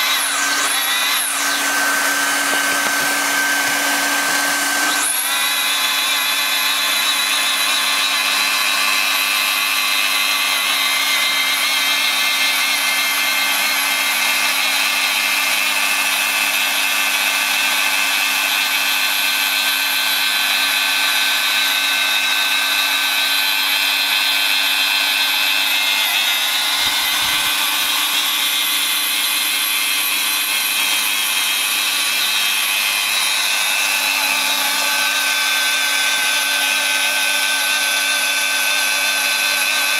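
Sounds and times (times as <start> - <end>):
hot-air blower hissing: 0.0 - 5.6, 25.9 - 28.9
welder motor whining: 0.0 - 14.9, 23.2 - 39.9.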